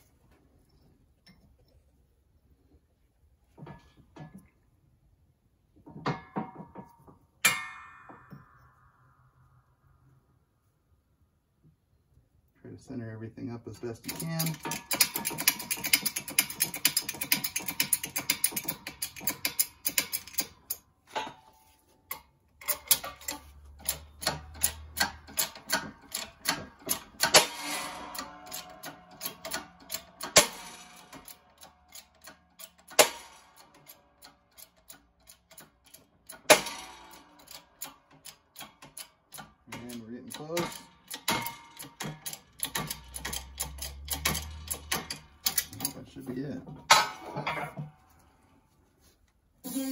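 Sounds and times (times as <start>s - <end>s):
sharp loud metal pops: 7.4s - 8.6s, 24.2s - 31.5s, 32.9s - 33.8s, 36.3s - 37.6s, 40.5s - 45.8s, 46.8s - 47.8s
metal ticking under press: 22.1s - 47.8s.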